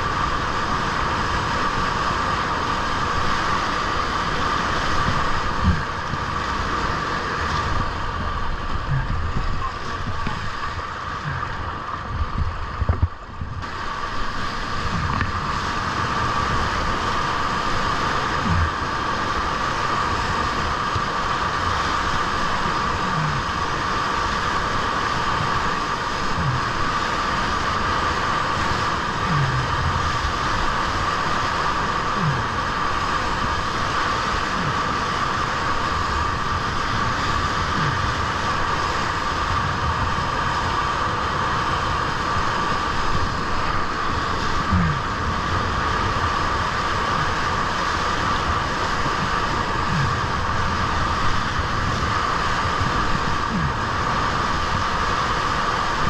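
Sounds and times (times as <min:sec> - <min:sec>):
whitewater rushing: 0:00.0 - 0:56.0
low thumps: 0:05.1 - 0:06.0, 0:14.9 - 0:15.5.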